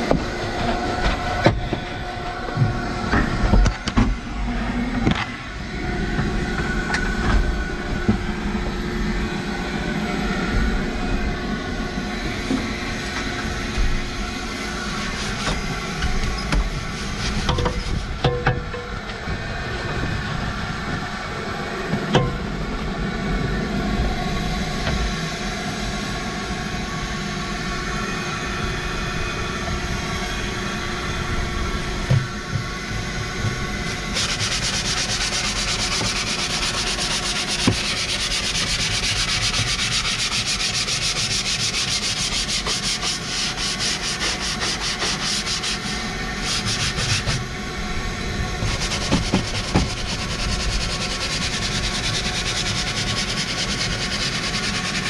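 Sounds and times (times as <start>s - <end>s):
steady low hum: 0.0s - 55.0s
hand brush scrubbing rubber mat: 16.7s - 18.1s, 34.0s - 47.4s, 48.6s - 55.0s.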